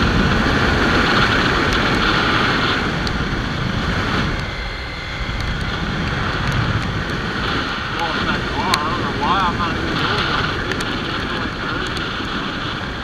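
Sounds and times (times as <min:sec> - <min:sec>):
motorcycle engine running: 0:00.0 - 0:13.0
wind rushing over microphone: 0:00.0 - 0:13.0.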